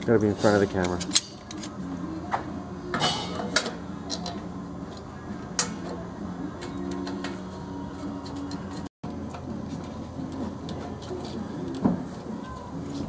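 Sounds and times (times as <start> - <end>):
light metallic clicks and scrapes: 0.1 - 1.8.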